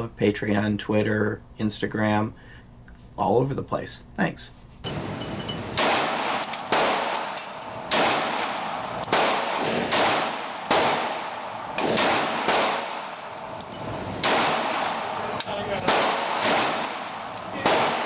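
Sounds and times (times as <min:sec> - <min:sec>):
pistol shots echoing indoors: 0:04.9 - 0:18.0.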